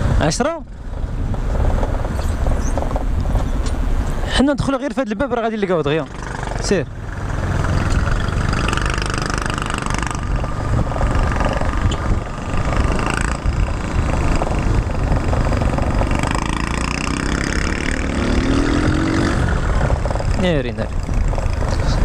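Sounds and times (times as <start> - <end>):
wind and road noise: 0.0 - 22.0
scooter engine running: 6.0 - 22.0.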